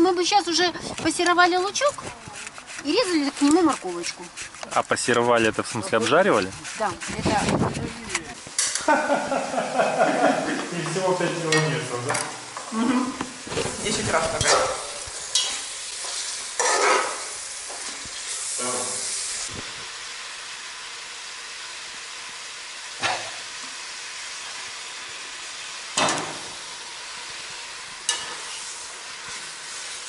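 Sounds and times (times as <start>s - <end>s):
vegetables sizzling in oil: 0.0s - 30.0s
metal fork scraping pot: 1.2s - 8.8s.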